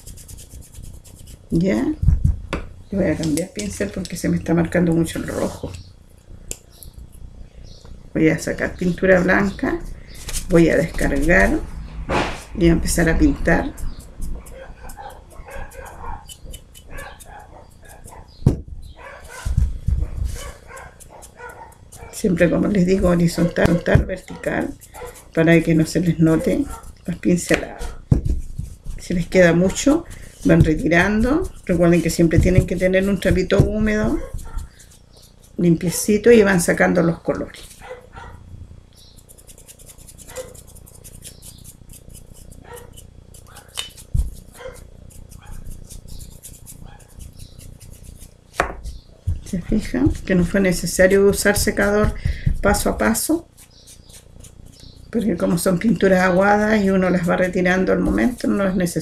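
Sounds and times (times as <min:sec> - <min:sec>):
paintbrush scratching plaster: 0:00.0 - 0:02.0, 0:13.0 - 0:38.0, 0:39.0 - 0:59.0
dog barking: 0:14.4 - 0:16.3, 0:16.9 - 0:18.3, 0:19.0 - 0:22.2, 0:24.3 - 0:25.3, 0:26.3 - 0:27.0, 0:27.7 - 0:28.1, 0:34.2 - 0:34.7, 0:37.8 - 0:38.4, 0:40.3 - 0:40.6, 0:42.6 - 0:43.8, 0:44.5 - 0:45.7, 0:46.8 - 0:47.2.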